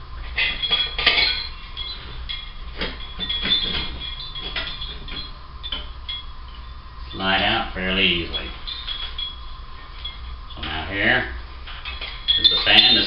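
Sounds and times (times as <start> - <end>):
thin high metal scraping: 0.2 - 11.0, 11.6 - 13.0
metal housing clinking and knocking: 0.3 - 6.8, 11.6 - 13.0.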